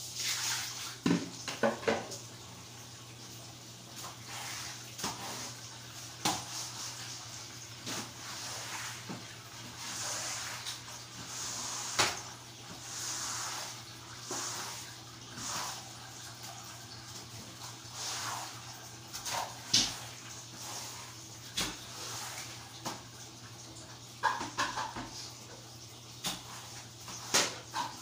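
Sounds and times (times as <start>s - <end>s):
broom swishing on tiled floor: 0.0s - 1.0s, 4.0s - 5.6s, 6.3s - 16.1s, 17.6s - 23.0s.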